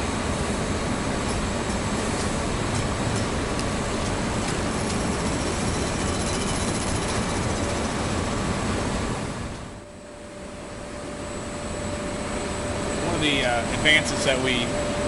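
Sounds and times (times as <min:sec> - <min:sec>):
conveyor mechanical rumble: 0:00.0 - 0:15.0
faint steady hum: 0:00.0 - 0:15.0.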